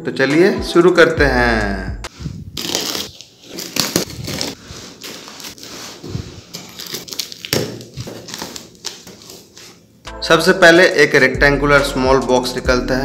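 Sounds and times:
packing tape ripping: 2.1s - 9.8s
cardboard flaps crackling: 2.6s - 9.8s.

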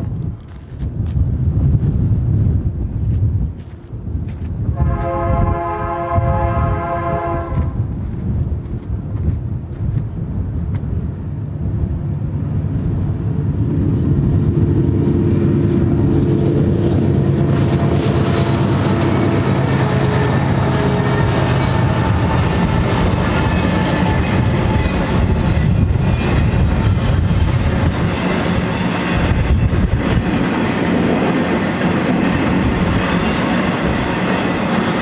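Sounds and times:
diesel locomotive engines: 0.0s - 35.0s
train cars rumbling and clattering: 0.0s - 35.0s
locomotive horn: 4.7s - 7.9s, 17.3s - 24.0s.

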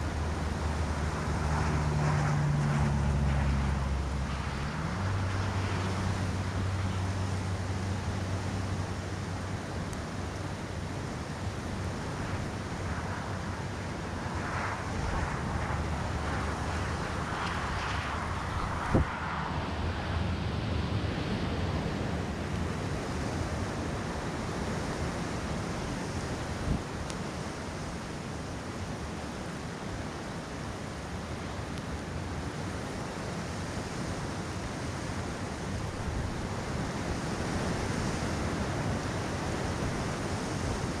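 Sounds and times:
wind on microphone: 11.9s - 22.3s.

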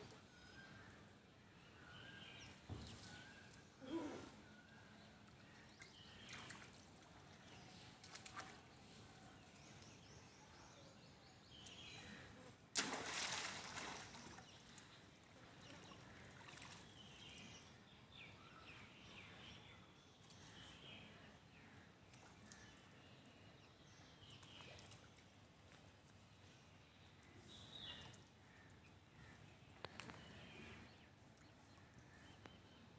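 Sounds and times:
sudden splash: 12.7s - 14.4s
water sloshing: 12.8s - 14.8s.

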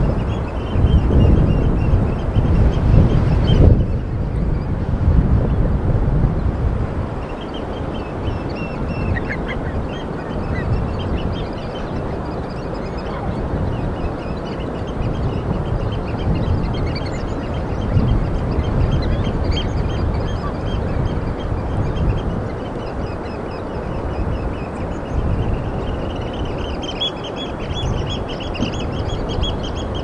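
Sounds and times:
budgerigars chirping: 7.2s - 30.0s.

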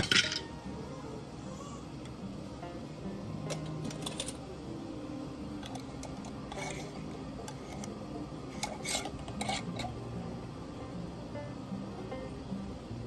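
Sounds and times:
metal lid clinking on glass jar: 0.0s - 0.5s, 3.5s - 4.4s, 5.6s - 7.0s, 8.6s - 10.0s.

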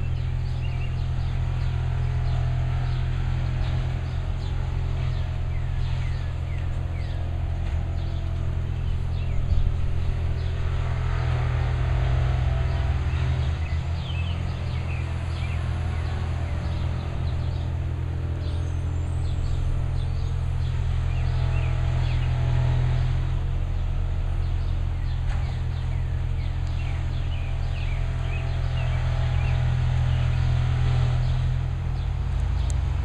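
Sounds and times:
birds chirping: 0.0s - 33.0s
diesel machinery droning: 0.0s - 33.0s.

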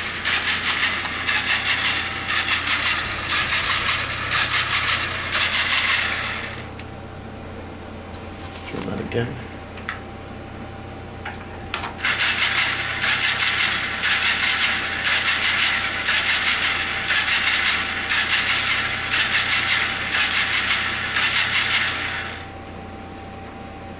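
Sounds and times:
electric motor and gears whirring: 0.0s - 7.0s, 11.7s - 22.5s.

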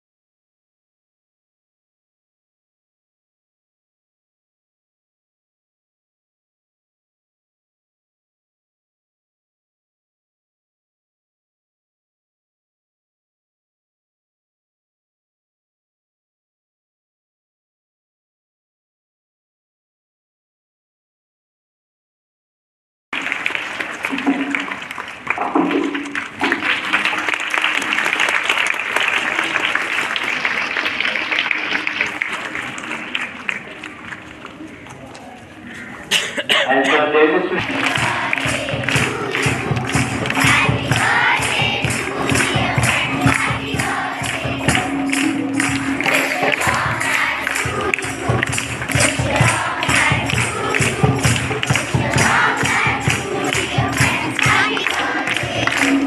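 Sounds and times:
crowd applauding: 23.1s - 34.7s, 37.2s - 56.0s
music with quick beat: 37.6s - 56.0s.

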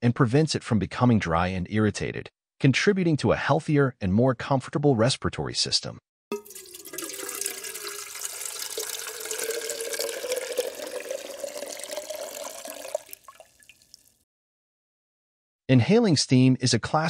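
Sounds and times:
water pouring into a glass: 6.3s - 14.2s.

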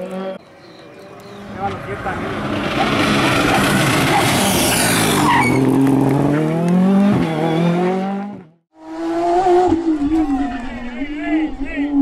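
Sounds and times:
rally car engine at full throttle: 0.0s - 12.0s
tyre squeal: 4.1s - 5.7s.

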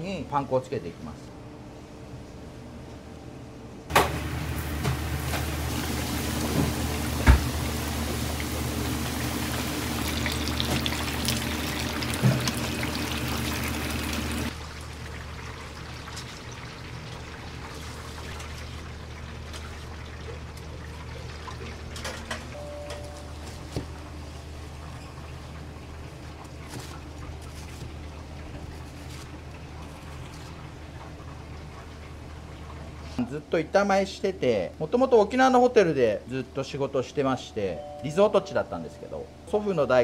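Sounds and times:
water pouring: 5.2s - 22.1s.

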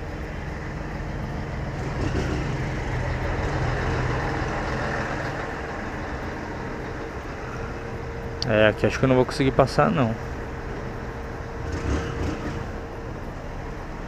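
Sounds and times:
motorcycle engine at low speed: 0.0s - 14.0s
truck engines idling: 0.0s - 14.0s.

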